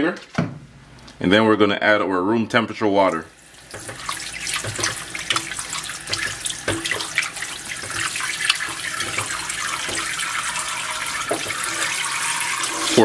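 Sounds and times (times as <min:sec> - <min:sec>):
tap water running into sink: 0:03.0 - 0:13.0.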